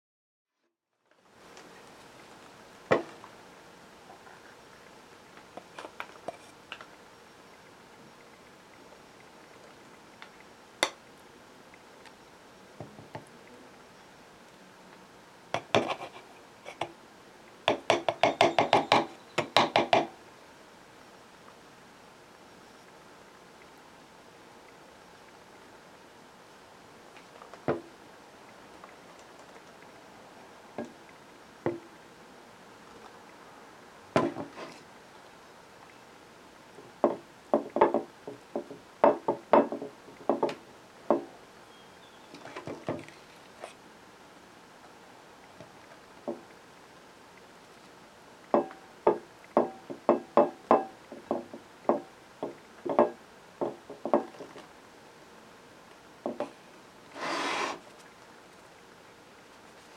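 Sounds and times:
knife scraping in plastic jar: 57.2s - 57.8s.

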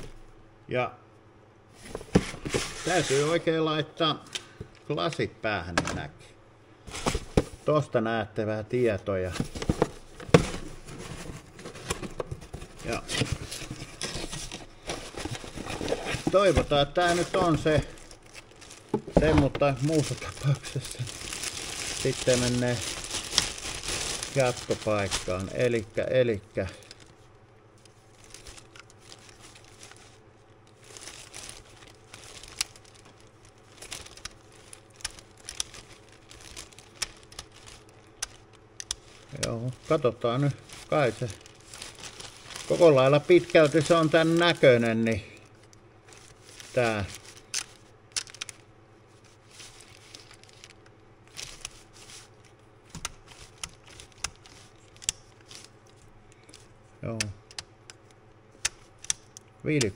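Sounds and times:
plastic bag crinkling: 9.4s - 56.7s.

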